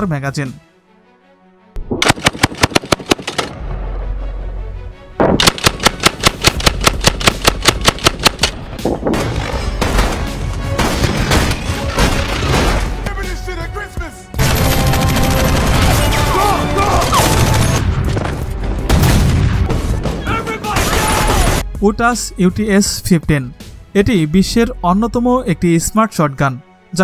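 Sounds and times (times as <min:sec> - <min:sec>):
automatic shotgun fire: 0:02.0 - 0:03.5, 0:05.4 - 0:08.5.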